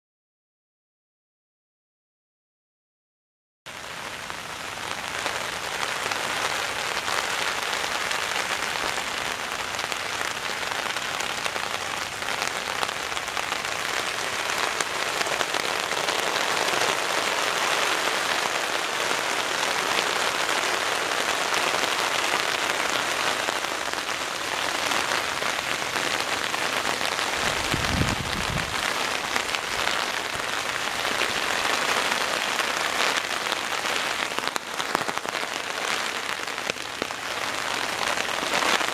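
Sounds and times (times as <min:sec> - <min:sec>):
heavy rain on a tarp: 0:03.7 - 0:38.9.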